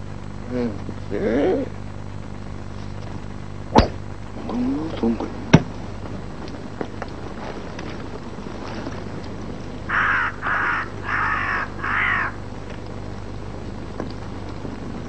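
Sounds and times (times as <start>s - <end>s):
bird cawing: 9.9s - 12.5s.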